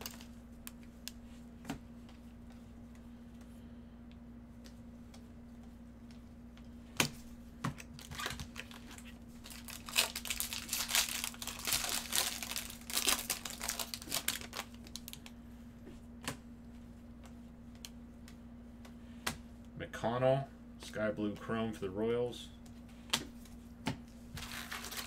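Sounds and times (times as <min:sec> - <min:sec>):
foil wrapper tearing and crinkling: 0:08.0 - 0:15.3, 0:24.4 - 0:25.0.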